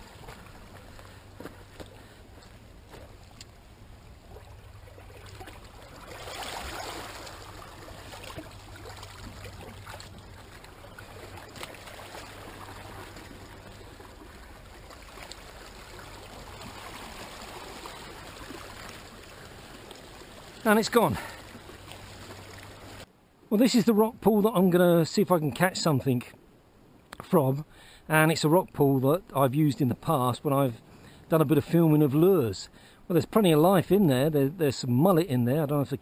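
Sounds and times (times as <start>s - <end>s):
seawater washing over rocks: 4.2s - 23.1s.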